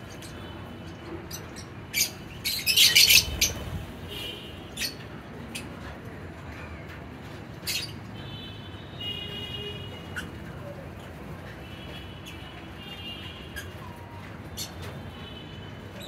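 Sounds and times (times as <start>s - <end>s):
lovebirds chirping and squawking: 0.0s - 5.9s, 7.6s - 8.1s, 9.9s - 10.6s, 12.2s - 15.0s.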